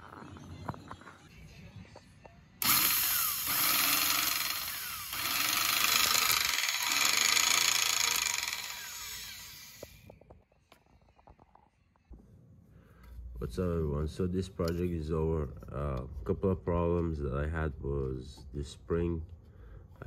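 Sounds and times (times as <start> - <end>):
circular saw motor running: 2.6 - 10.0.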